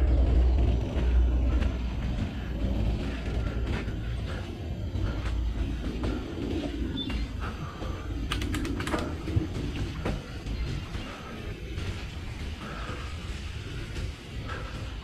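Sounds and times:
bike creaks and rattles: 0.0 - 15.0
sharp clicks: 8.2 - 9.3.

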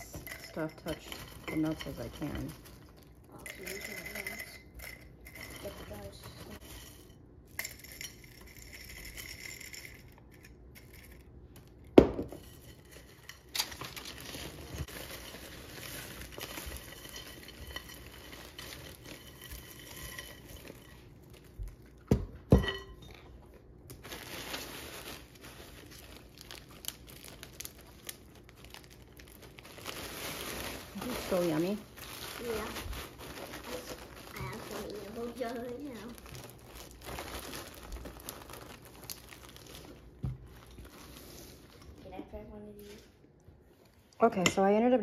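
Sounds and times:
glass jars clinking: 0.0 - 2.6, 3.4 - 11.1, 22.5 - 23.3.

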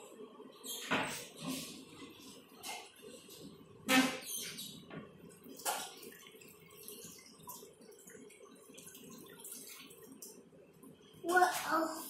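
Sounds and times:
water sloshing and dripping: 0.6 - 12.0.

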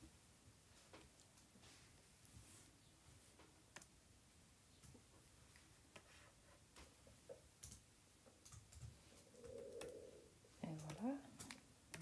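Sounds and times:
faint clicks: 7.6 - 10.0, 10.7 - 12.0.

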